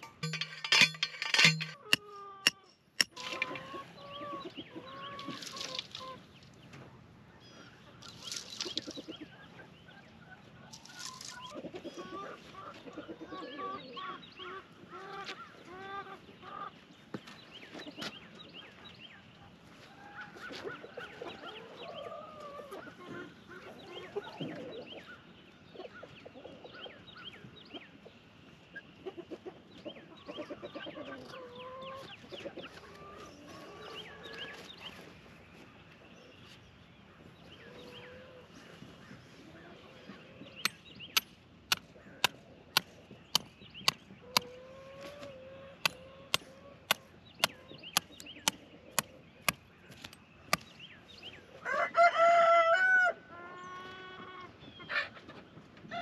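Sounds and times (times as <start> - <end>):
chickens clucking: 0.0 - 6.9, 7.9 - 16.9, 20.1 - 25.1, 25.7 - 27.0, 27.7 - 35.1, 37.6 - 49.6, 53.4 - 56.0.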